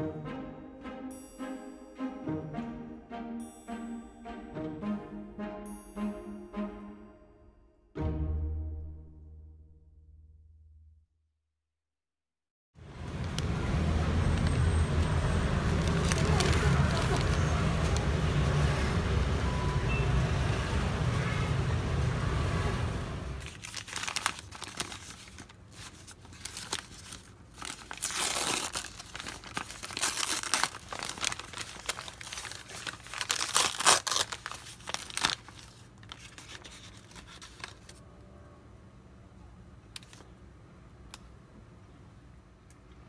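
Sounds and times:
street traffic noise: 0:12.8 - 0:43.0
paper bag crinkling and tearing: 0:15.5 - 0:18.1, 0:23.4 - 0:38.0.

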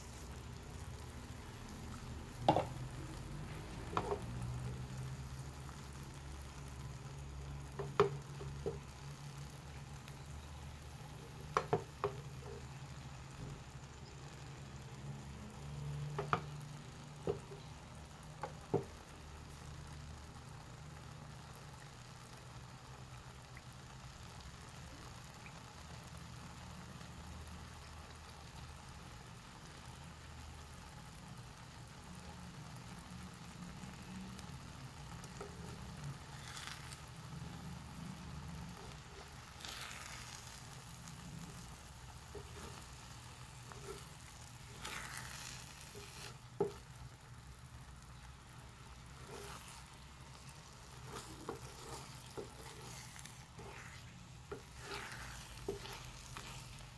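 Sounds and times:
eggs sizzling in a frying pan: 0:00.0 - 0:56.9
wooden spatula scraping: 0:03.5 - 0:04.8, 0:34.9 - 0:56.9.

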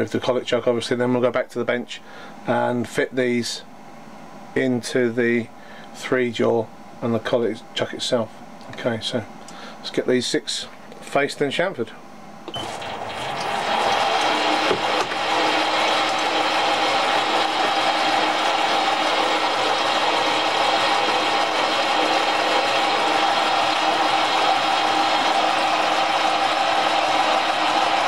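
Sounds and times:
lathe running with whine: 0:12.5 - 0:28.0.

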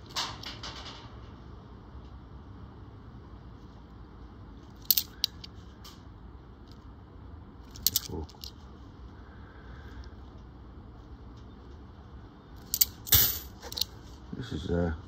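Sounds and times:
coins clinking: 0:04.8 - 0:05.5, 0:07.7 - 0:08.6, 0:12.6 - 0:13.9.

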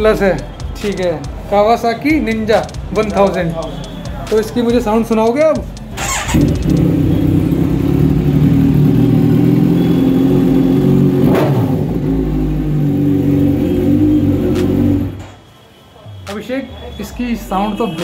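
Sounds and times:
sharp exhaust crack: 0:05.6 - 0:15.4
motorcycle engine running loud: 0:06.0 - 0:15.2.

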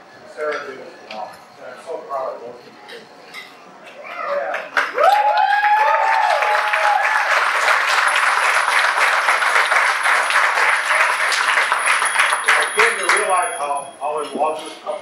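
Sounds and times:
person cheering: 0:04.1 - 0:07.3
crowd applauding: 0:04.4 - 0:13.6.

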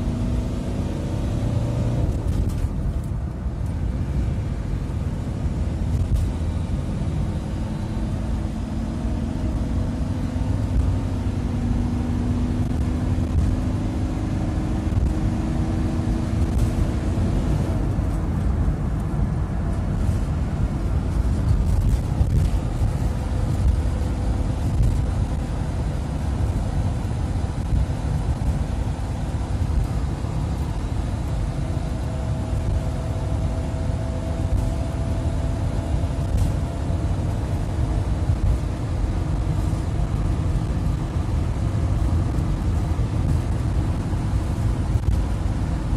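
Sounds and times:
road noise: 0:00.0 - 0:45.9
van engine accelerating: 0:00.0 - 0:45.9
wind noise: 0:00.0 - 0:45.9.

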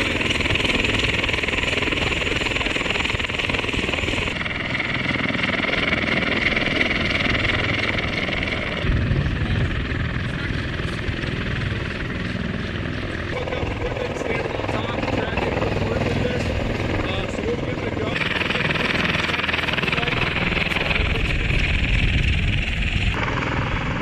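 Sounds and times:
helicopter rotor and engine noise: 0:00.0 - 0:24.0
high turbine whine: 0:00.0 - 0:24.0
heavy low rumble: 0:08.5 - 0:12.6.

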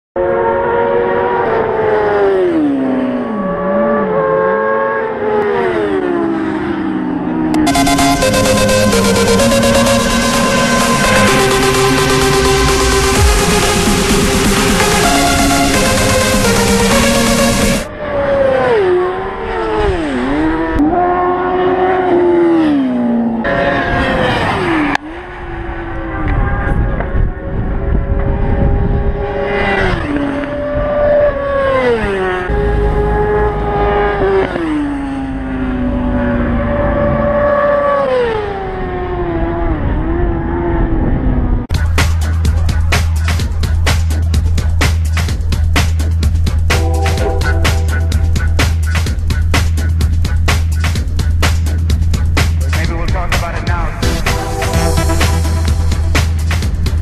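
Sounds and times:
racing motorcycle engine revving: 0:00.2 - 0:57.0
sport bike engines passing: 0:17.4 - 0:41.6
wind rumble on microphone: 0:25.4 - 0:29.5.

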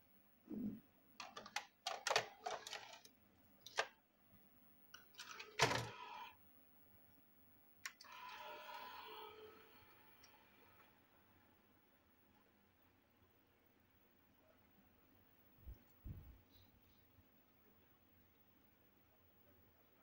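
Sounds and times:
tape mechanism whirring: 0:07.8 - 0:10.8.

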